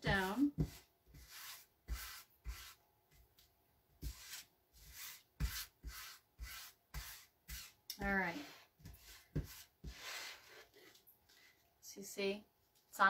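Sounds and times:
hands rubbing stencil onto wood: 0.1s - 2.8s, 4.0s - 11.0s.

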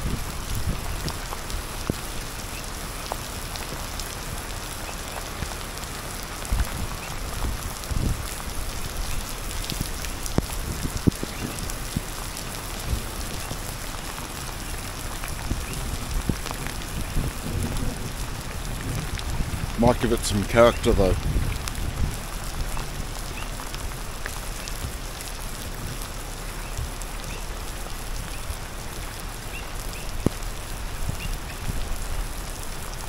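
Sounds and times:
rain on wet street: 0.0s - 33.0s.

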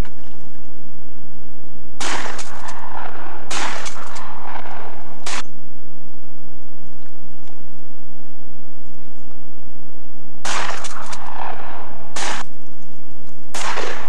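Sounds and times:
shotgun blasts echoing: 2.0s - 5.6s, 10.4s - 12.6s, 13.5s - 14.0s.

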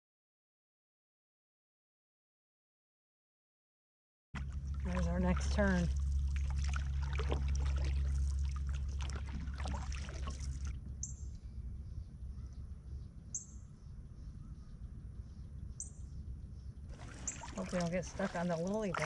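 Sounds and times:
paddle splashes: 4.4s - 10.8s, 16.9s - 19.0s
low rumble: 4.4s - 19.0s.

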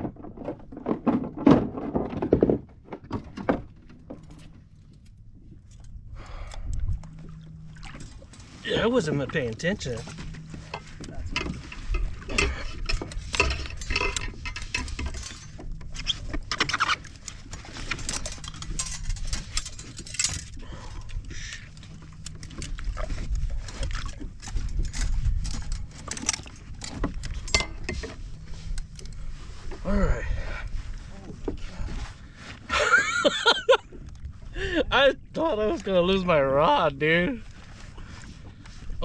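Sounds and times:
net frame clattering on hull: 0.0s - 6.0s, 7.1s - 39.0s
low rumble: 4.1s - 16.5s.

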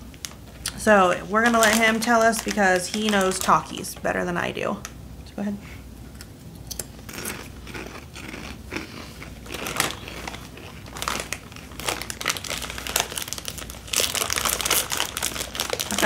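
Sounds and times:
people crunching chips: 6.7s - 16.0s.

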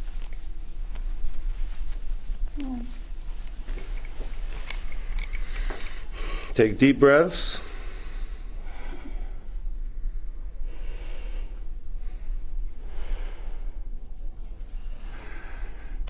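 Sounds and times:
woman breathing deeply: 5.0s - 6.6s, 7.5s - 16.0s.

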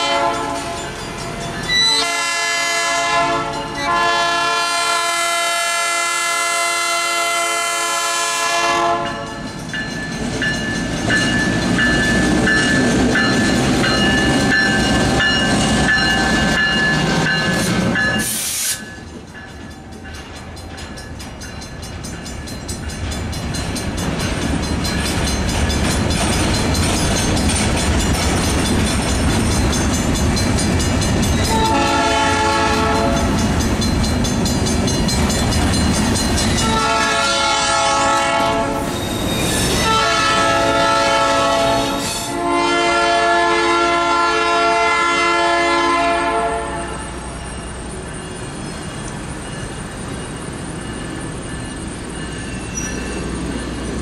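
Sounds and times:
locomotive horn blasts: 0.0s - 0.9s, 1.7s - 9.3s, 31.5s - 33.3s, 36.6s - 38.9s, 39.8s - 47.2s
diesel locomotive passing: 0.0s - 54.0s.

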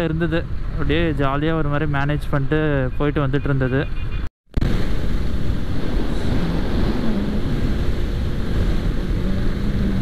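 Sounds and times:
motorcycle engine hum: 3.8s - 10.0s
wind rush on microphone: 4.6s - 10.0s.

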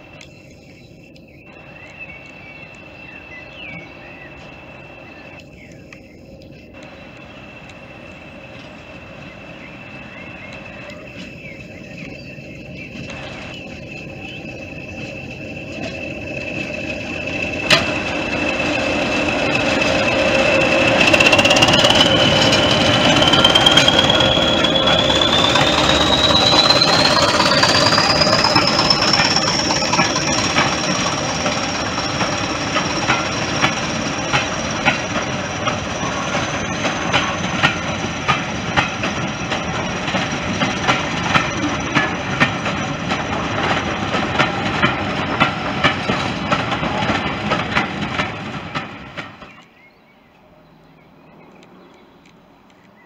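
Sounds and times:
diesel locomotive engine running hard: 0.0s - 49.8s
train wheels clicking over rail joints: 0.0s - 49.8s
high engine whistle: 6.8s - 42.2s.

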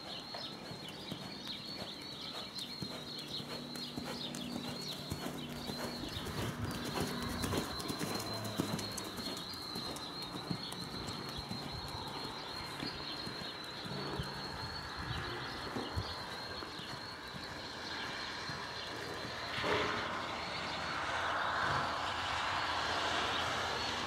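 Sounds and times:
high chirping: 0.0s - 18.6s
hoofbeats on dirt: 0.0s - 19.8s.

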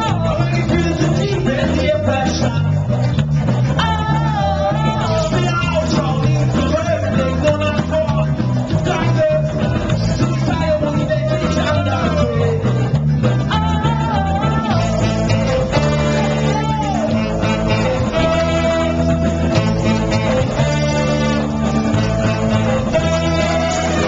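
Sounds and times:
person singing: 0.0s - 2.8s, 3.7s - 24.0s
bass line: 0.0s - 24.0s
electric guitar: 0.0s - 24.0s
saxophones: 14.2s - 24.0s.

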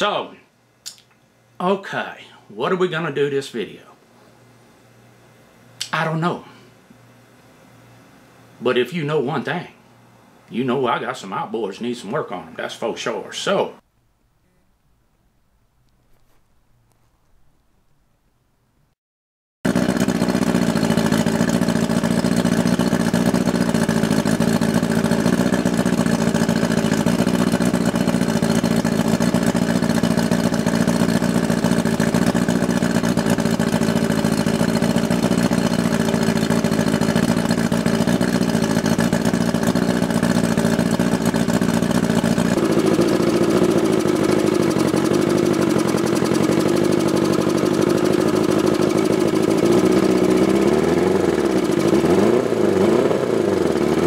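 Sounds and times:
outboard motor idling and revving: 19.7s - 54.0s.

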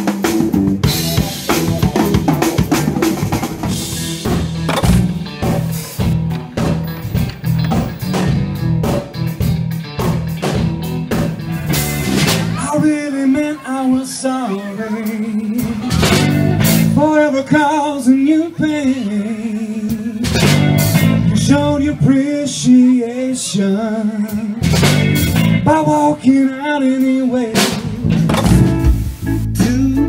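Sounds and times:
drum kit hits: 0.0s - 12.6s, 20.3s - 21.2s, 27.6s - 29.8s
electric guitar: 0.0s - 12.8s, 14.2s - 17.2s, 18.5s - 23.0s, 24.2s - 30.0s
bass line: 0.0s - 23.0s, 23.6s - 30.0s
person singing: 12.4s - 24.7s, 25.4s - 28.2s, 29.3s - 30.0s.

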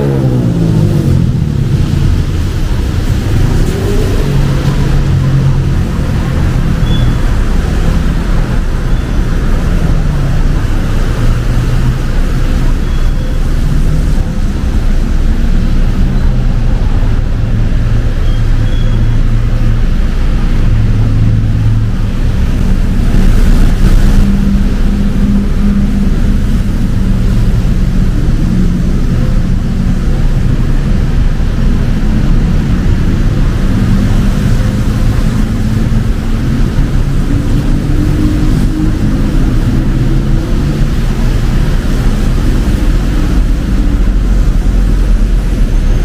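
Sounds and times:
vehicle passing: 0.0s - 18.6s
traffic rumble: 0.0s - 46.0s.

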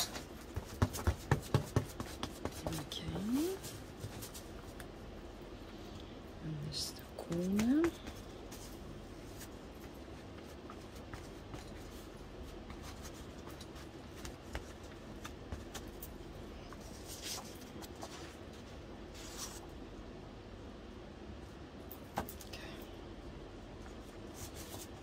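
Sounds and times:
faint steady hum: 0.0s - 25.0s
paper rustling and brushing: 16.7s - 19.7s.

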